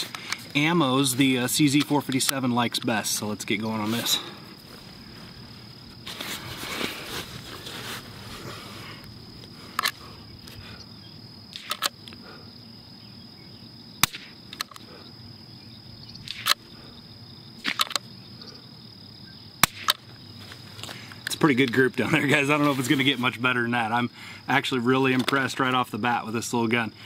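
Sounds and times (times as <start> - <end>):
rifle bolt clicks: 9.8 - 10.0, 11.5 - 12.2, 17.6 - 18.0
rifle shots: 14.0 - 14.4, 19.6 - 20.0.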